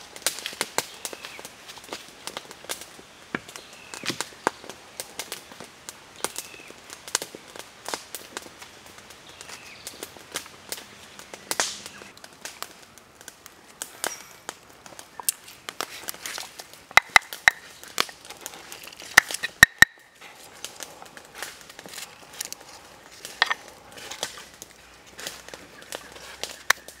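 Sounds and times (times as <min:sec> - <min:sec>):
dry crinkling and rustling: 0:00.0 - 0:27.0
sharp clicks and taps: 0:17.0 - 0:18.4, 0:19.1 - 0:20.1.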